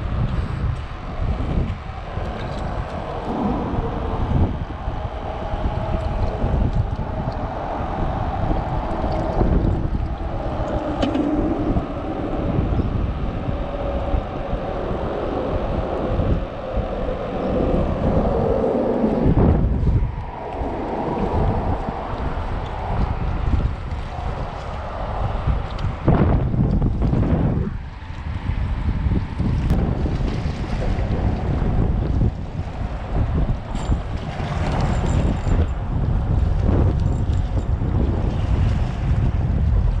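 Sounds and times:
road traffic drone: 0.0s - 30.0s
wind buffeting microphone: 0.0s - 40.0s.

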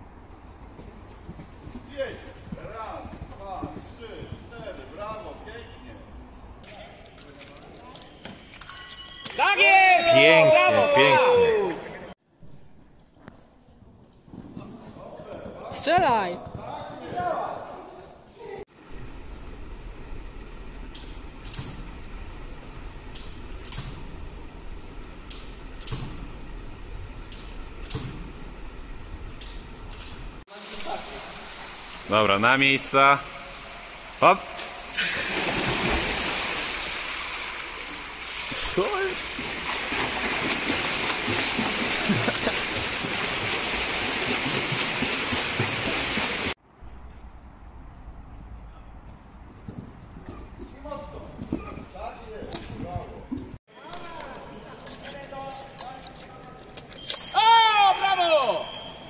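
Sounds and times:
brief high ring: 8.6s - 9.6s, 58.5s - 59.0s
swimmers splashing water: 30.6s - 46.6s.

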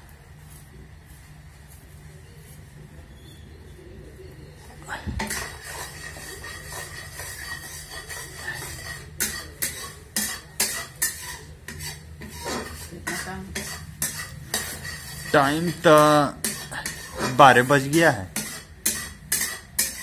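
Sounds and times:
spoon scraping metal pan: 5.2s - 20.0s.

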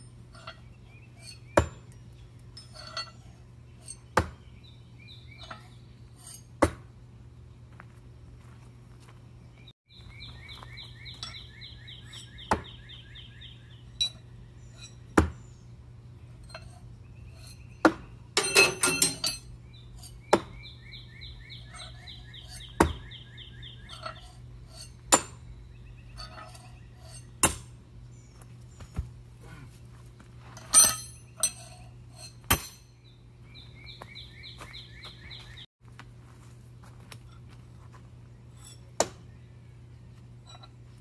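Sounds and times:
metal clattering: 18.4s - 20.1s, 30.6s - 32.9s.

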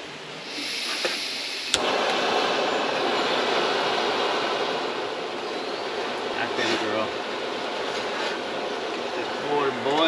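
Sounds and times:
gas hissing from stove valve: 0.4s - 9.2s
gas burner rushing: 0.4s - 10.0s
stove ignition click: 1.0s - 2.2s.

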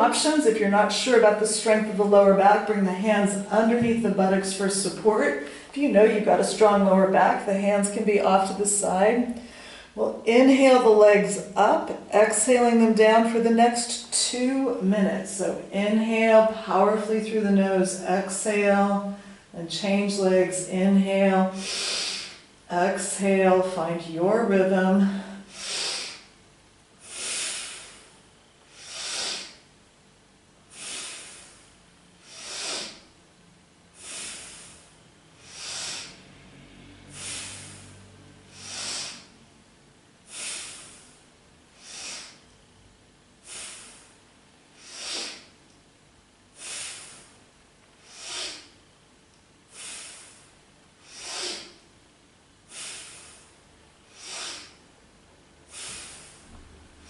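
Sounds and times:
woman breathing through nose: 9.4s - 10.0s, 21.6s - 22.5s, 25.1s - 26.3s, 27.0s - 29.6s, 30.7s - 33.1s, 33.9s - 39.4s, 40.2s - 41.2s, 41.8s - 42.4s, 43.4s - 45.5s, 46.5s - 47.4s, 48.0s - 48.8s, 49.7s - 51.8s, 52.7s - 54.8s, 55.7s - 56.5s.

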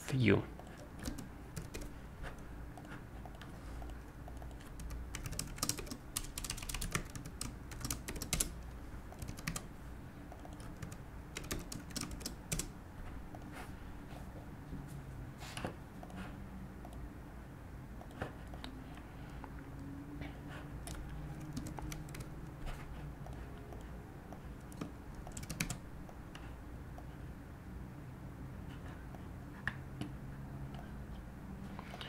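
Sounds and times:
low steady hum: 0.0s - 32.0s
keyboard typing: 0.6s - 9.7s, 10.3s - 13.5s, 20.7s - 26.4s.

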